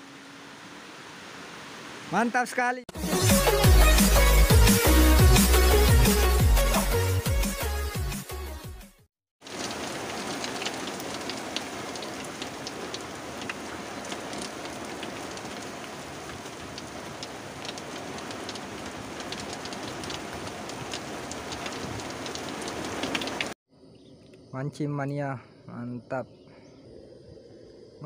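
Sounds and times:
heavy rain on pond water: 0.0s - 2.2s, 9.4s - 23.6s
electronic music: 2.9s - 9.0s.

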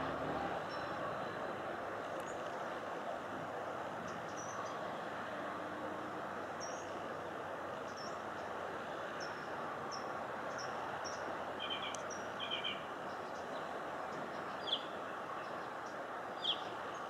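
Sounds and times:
outdoor background noise: 0.0s - 17.0s
small birds chirping: 9.2s - 17.0s.

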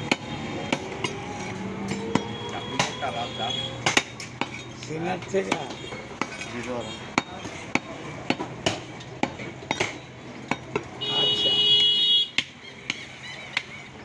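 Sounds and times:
cleaver chopping on wooden block: 3.8s - 4.6s, 7.1s - 10.9s.

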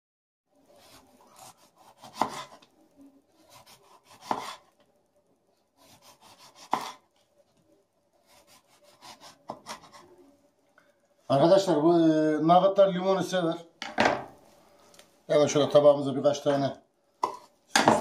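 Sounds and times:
knife sawing through lemon: 5.8s - 6.9s.

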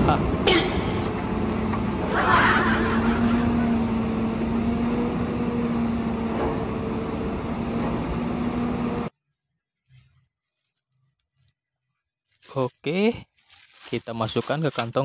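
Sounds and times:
diesel engine under load: 0.0s - 9.1s.

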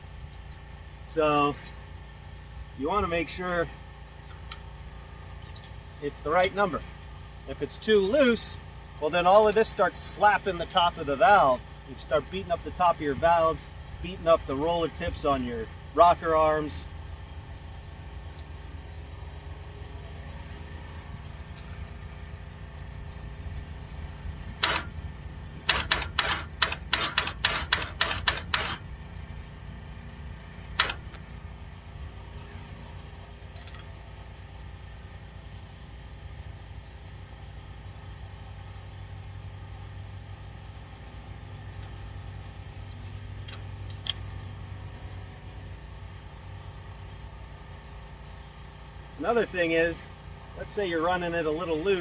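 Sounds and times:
metallic clicks of hand tools: 24.6s - 24.9s, 25.7s - 28.8s, 30.8s - 31.2s.

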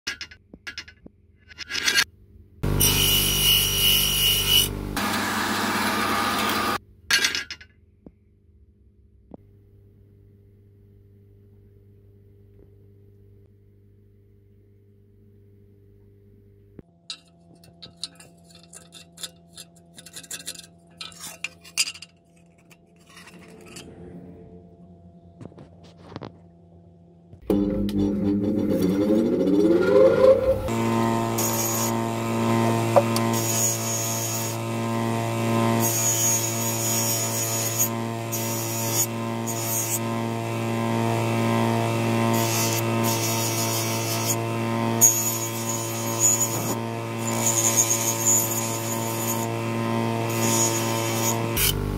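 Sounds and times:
bench grinder motor hum: 2.6s - 6.8s, 27.4s - 51.9s
metal grinding rasp: 17.1s - 24.0s, 27.6s - 40.3s, 42.1s - 51.9s
scraping and clinking on metal: 17.1s - 24.0s.

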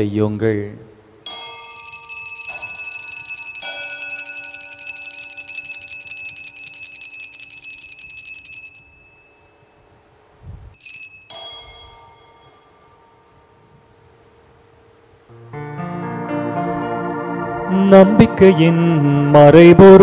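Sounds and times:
altar bells jingling: 1.2s - 9.8s, 10.8s - 13.2s.

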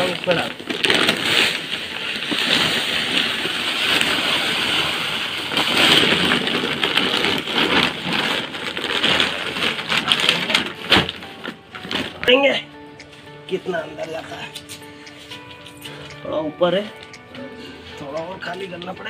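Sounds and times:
soil pouring into plastic tub: 0.0s - 10.6s
plastic sack crinkling: 0.0s - 12.6s.

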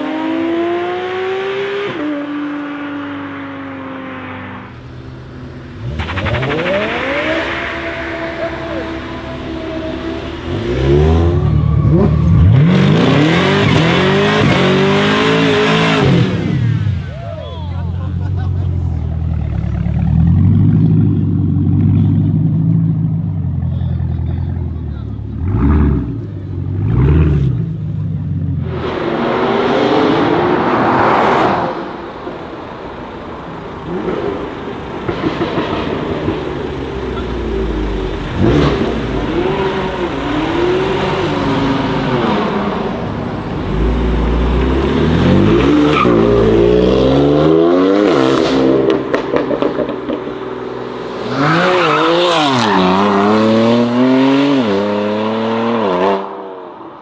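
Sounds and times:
car engines revving hard: 0.0s - 57.0s
tyre squeal: 6.2s - 14.0s.

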